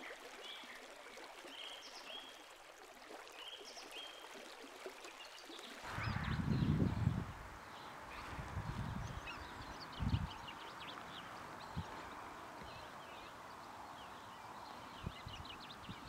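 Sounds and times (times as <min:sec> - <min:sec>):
wild birds chirping: 0:03.4 - 0:16.0
steady outdoor hiss: 0:05.2 - 0:16.0
wind buffeting microphone: 0:05.8 - 0:12.2, 0:15.0 - 0:16.0.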